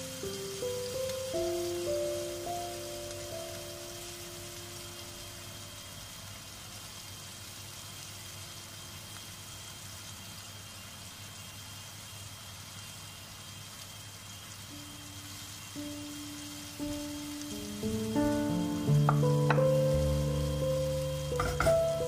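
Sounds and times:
onions sizzling in oil: 0.0 - 22.0
background music: 15.8 - 22.0.

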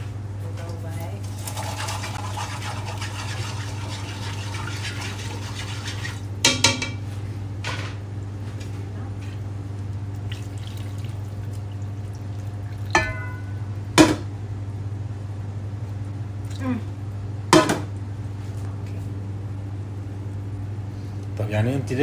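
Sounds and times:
steady low hum: 0.0 - 22.0
stock pouring into a pot: 1.3 - 6.2
metal pot and dishes clinking: 12.9 - 13.6.

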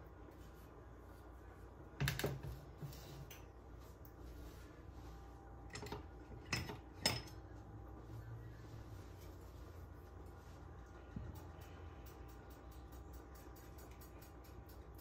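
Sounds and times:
dishes and utensils clinking: 5.7 - 7.5.

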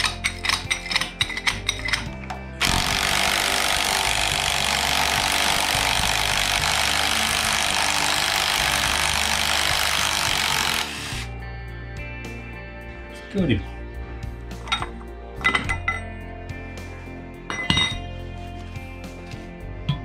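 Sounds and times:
power tool rushing noise: 2.6 - 11.3.

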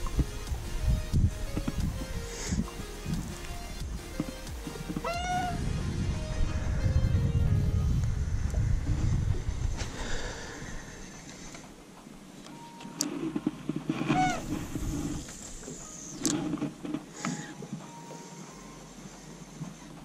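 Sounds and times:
wind buffeting microphone: 0.0 - 11.8, 13.6 - 17.1
squeaky chirp: 5.0 - 5.6, 14.1 - 14.5.

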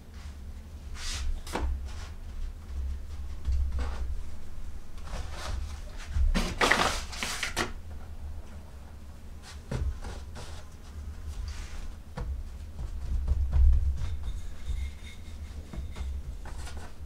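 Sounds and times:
low steady hum: 0.0 - 17.0
paper bag rustling: 5.0 - 7.7
dough patted on wooden board: 12.1 - 14.2.

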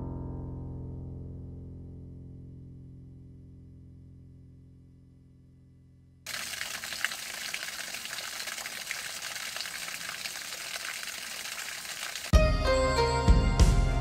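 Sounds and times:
waterfall trickling and splashing: 6.3 - 12.3.

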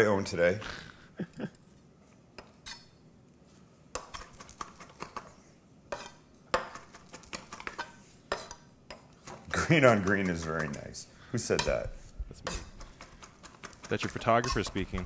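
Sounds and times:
utensils and dishes clinking: 12.5 - 15.0.

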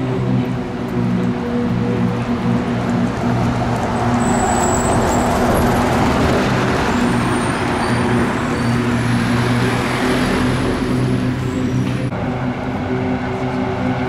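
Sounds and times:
bus passing close by: 0.0 - 14.0
car passing: 0.0 - 14.0
street traffic: 0.0 - 14.0.

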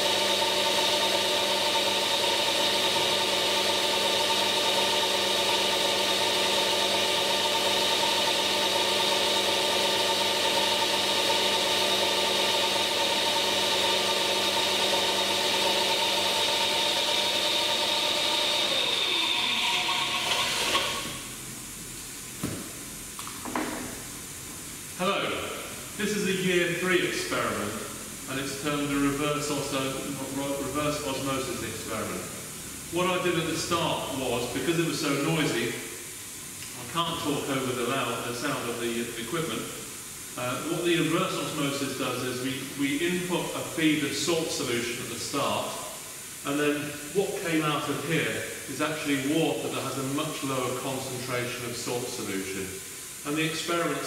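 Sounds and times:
pump running with high whine: 0.0 - 54.0.

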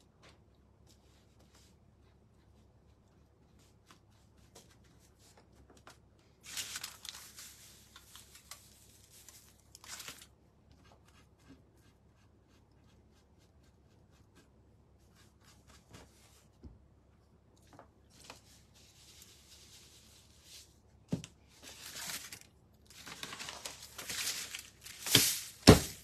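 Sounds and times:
aluminium foil crinkling: 6.4 - 10.3, 21.6 - 26.0
paintbrush scratching on canvas: 10.7 - 16.5.

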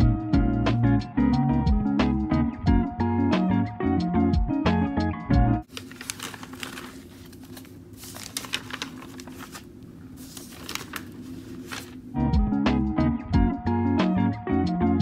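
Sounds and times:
notebook pages flipping: 5.6 - 12.2
faint steady hum: 5.7 - 12.2.

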